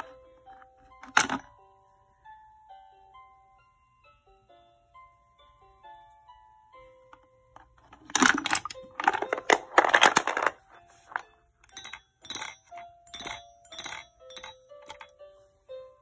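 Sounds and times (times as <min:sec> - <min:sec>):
wooden blocks clattering: 0:07.8 - 0:11.2
toy xylophone notes: 0:11.6 - 0:15.9.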